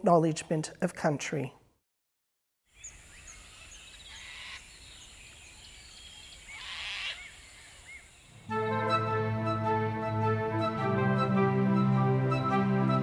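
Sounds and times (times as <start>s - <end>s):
birds chirping: 2.7s - 8.5s
rough bird calls: 2.7s - 8.5s.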